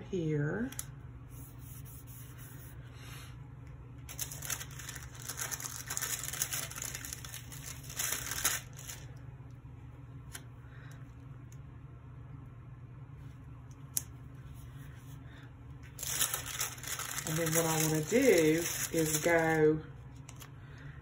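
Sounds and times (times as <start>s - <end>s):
steady low hum: 0.0s - 21.0s
paper rustling and crinkling: 4.1s - 9.1s, 15.8s - 19.6s.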